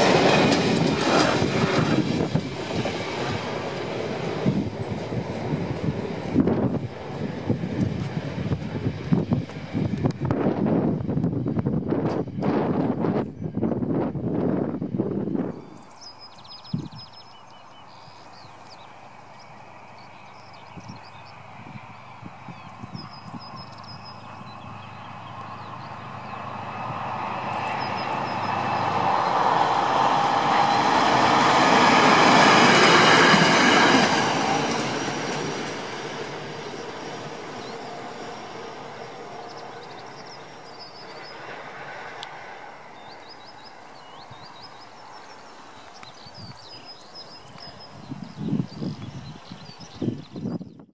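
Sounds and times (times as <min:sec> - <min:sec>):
track machine engine and wheels: 0:00.0 - 0:13.0
small birds chirping: 0:15.5 - 0:26.5, 0:43.0 - 0:50.9.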